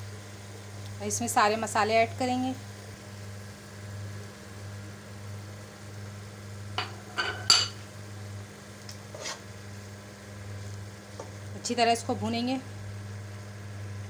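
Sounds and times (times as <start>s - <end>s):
steady low hum: 0.0s - 14.0s
spoon and bowl clinking on pot: 6.8s - 7.8s.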